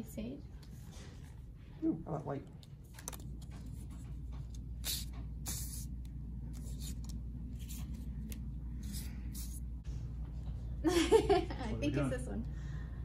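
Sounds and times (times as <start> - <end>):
steady low hum: 0.0 - 13.0
paper cards rustling on table: 2.5 - 9.7.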